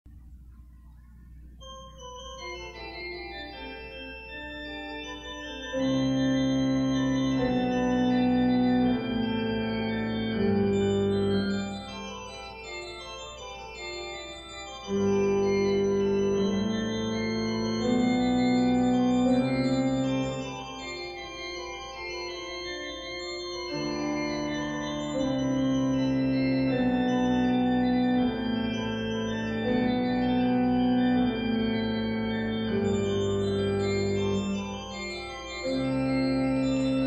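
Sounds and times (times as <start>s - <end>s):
organ playing held chords: 1.6s - 37.0s.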